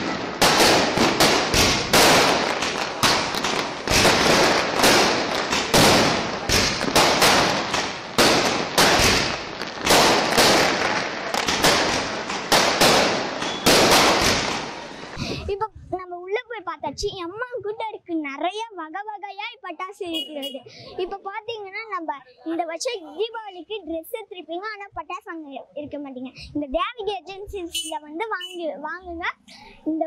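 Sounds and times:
firecrackers banging: 0.0 - 15.4.

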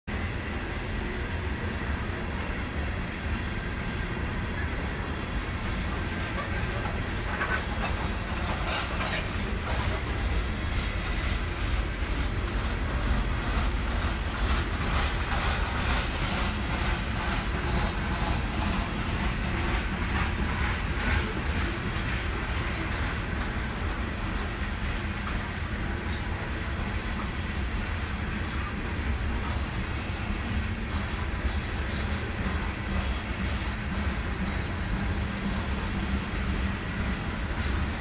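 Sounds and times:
train wheels rumbling on rail: 0.1 - 38.0
wheels clicking over rail joints: 5.6 - 38.0.

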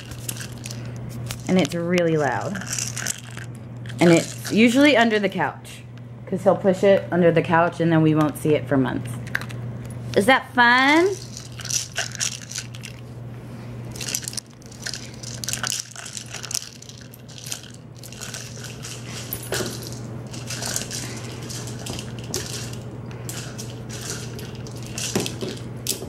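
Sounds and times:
kibble rattling in plastic ball: 0.0 - 5.2, 11.0 - 13.0, 13.9 - 25.7.

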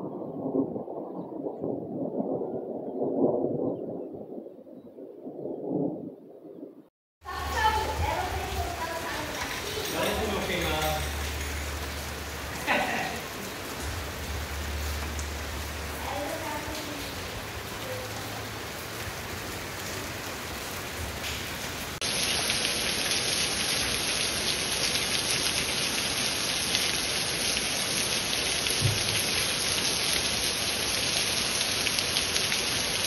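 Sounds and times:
heavy rain downpour: 7.2 - 33.0
rain falling: 7.2 - 33.0.

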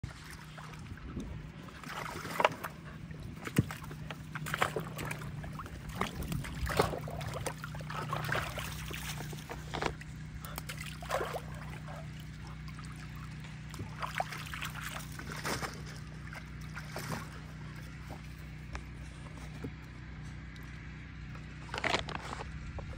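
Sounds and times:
water splashing and sloshing: 0.0 - 22.9.

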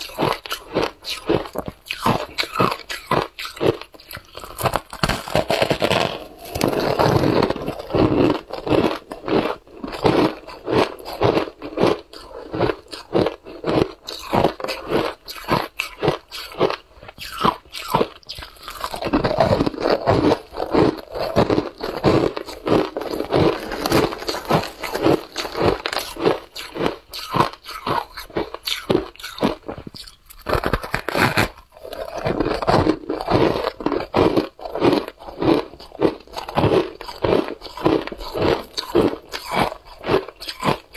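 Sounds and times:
shaved ice crunching: 17.2 - 40.9.

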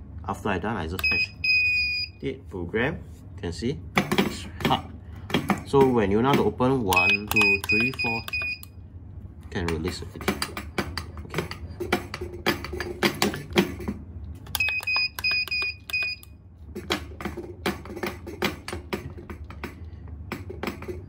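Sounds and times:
keypad buzzer beeps: 1.0 - 2.2, 6.9 - 8.7, 14.5 - 16.3.

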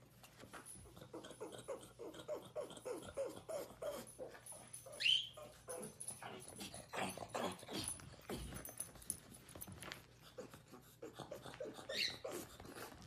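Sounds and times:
dog whimpering: 10.4 - 13.0
dog squealing: 11.0 - 13.0.

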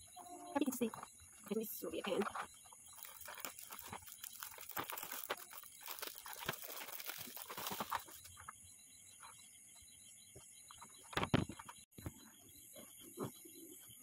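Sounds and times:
gift wrap crinkling and tearing: 2.9 - 8.3.

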